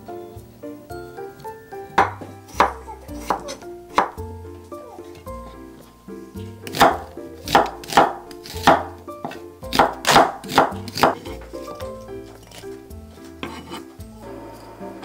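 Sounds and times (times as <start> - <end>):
soft background music: 0.0 - 15.0
knife chopping on wooden board: 1.9 - 4.2, 6.6 - 12.7, 13.4 - 13.9.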